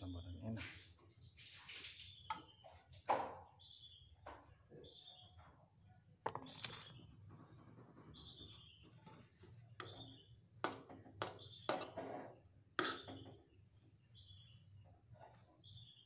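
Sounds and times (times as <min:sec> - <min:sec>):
high bird chirps: 0:06.3 - 0:10.4
metal spoon stirring in wok: 0:08.8 - 0:13.2
spoon clinking against pan: 0:12.8 - 0:13.2.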